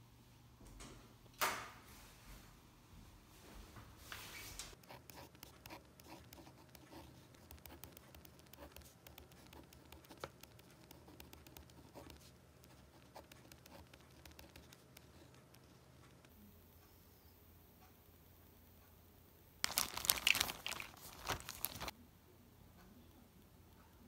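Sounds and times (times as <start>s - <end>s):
pen scratching on paper: 4.8s - 16.3s.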